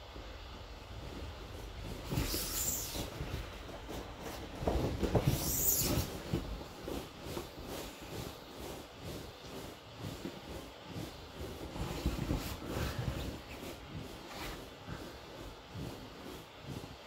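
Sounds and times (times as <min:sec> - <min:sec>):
inflatable vinyl creaking and squeaking: 0:01.9 - 0:08.4.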